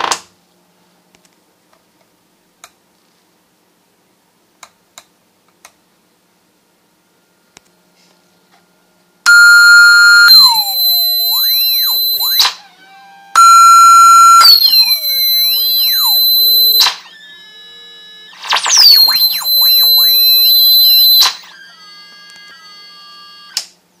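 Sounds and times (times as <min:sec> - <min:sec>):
gliding electronic tones: 0:09.3 - 0:12.8, 0:13.4 - 0:21.7.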